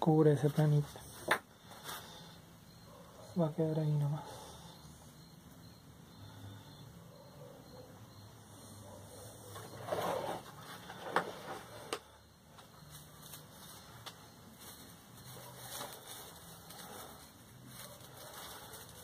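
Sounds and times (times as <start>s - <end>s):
rustling of wire and foliage: 9.5s - 19.0s.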